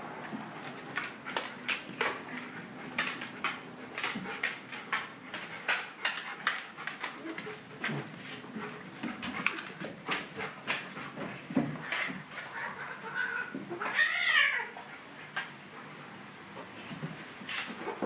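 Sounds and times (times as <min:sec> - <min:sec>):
dog sniffing and panting: 0:00.2 - 0:13.1.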